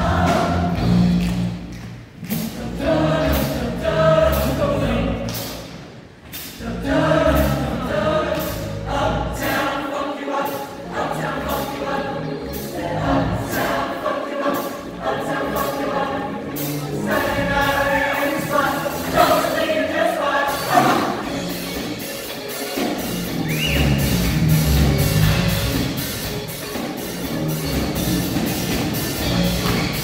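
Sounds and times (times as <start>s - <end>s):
large choir singing: 0.0s - 1.2s, 2.3s - 5.6s, 6.6s - 23.0s.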